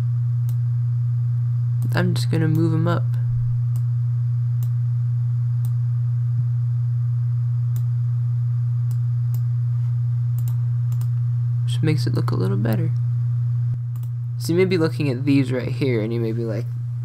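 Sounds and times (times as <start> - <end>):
steady low hum: 0.0 - 17.0
computer mouse clicks: 10.4 - 11.1.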